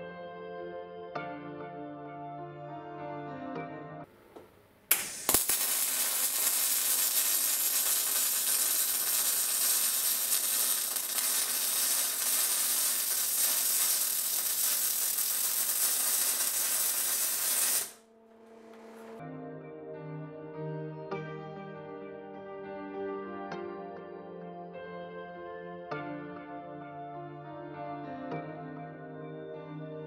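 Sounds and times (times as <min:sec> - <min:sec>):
welding arc crackling: 0:04.9 - 0:19.2.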